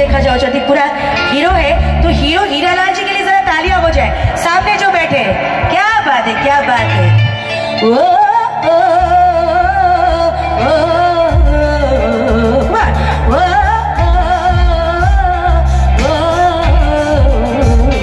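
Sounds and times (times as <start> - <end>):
woman singing with vibrato: 0.0 - 18.0
bass-heavy drum beat: 3.7 - 6.0, 10.1 - 18.0.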